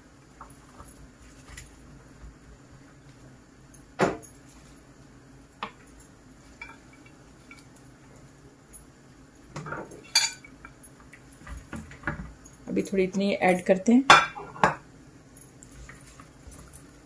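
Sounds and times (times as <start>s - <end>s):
crockery handled on a countertop: 14.1s - 14.8s.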